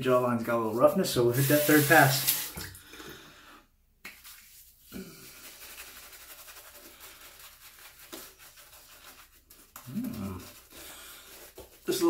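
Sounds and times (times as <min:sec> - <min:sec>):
shaving brush lathering face: 0:01.3 - 0:02.5, 0:04.1 - 0:12.0.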